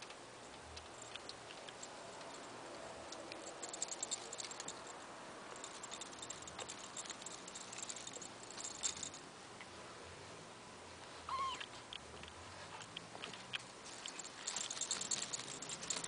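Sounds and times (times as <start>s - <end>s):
kittens playing with plastic ball: 12.2s - 16.0s.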